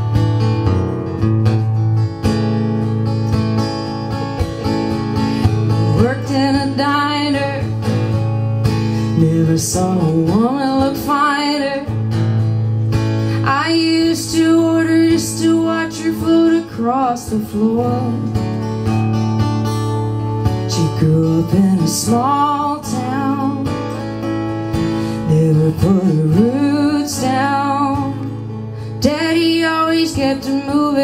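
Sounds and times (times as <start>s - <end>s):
acoustic guitars strumming: 0.0s - 31.0s
woman singing: 5.4s - 8.2s, 8.9s - 12.2s, 13.3s - 18.6s, 20.5s - 24.3s, 25.0s - 31.0s.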